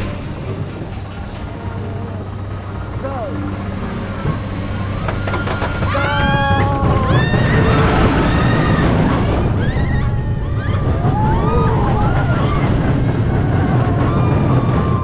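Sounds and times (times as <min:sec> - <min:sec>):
roller coaster rumbling: 0:00.0 - 0:15.0
wind buffeting microphone: 0:04.2 - 0:15.0
people shouting and squealing: 0:04.3 - 0:15.0.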